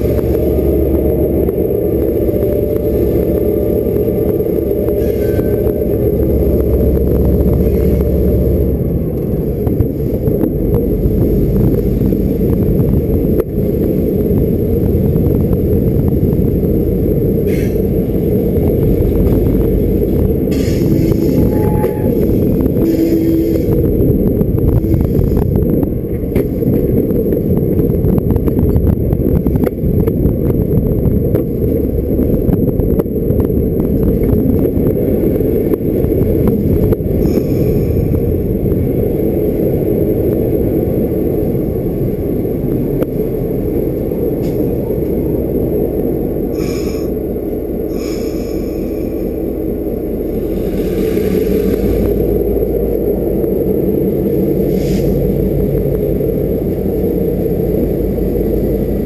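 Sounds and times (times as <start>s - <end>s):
freight train rumbling: 0.0s - 59.0s.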